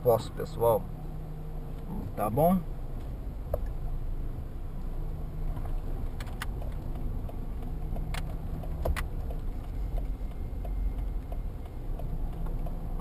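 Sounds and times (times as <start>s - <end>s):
car engine and tyres rumbling: 0.0s - 13.0s
light clicks and rattles: 5.5s - 13.0s.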